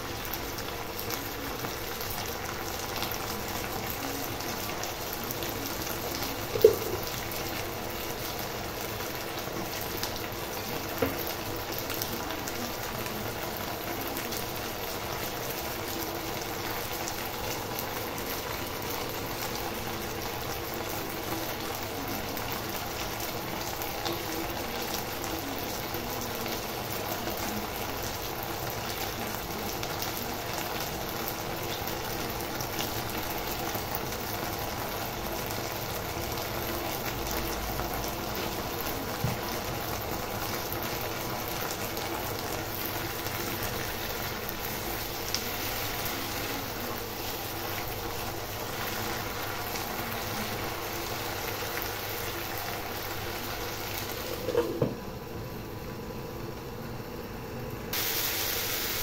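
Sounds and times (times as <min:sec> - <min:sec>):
okra sizzling in oil: 0:00.0 - 0:59.0
glass lid clattering on pan: 0:54.4 - 0:55.0.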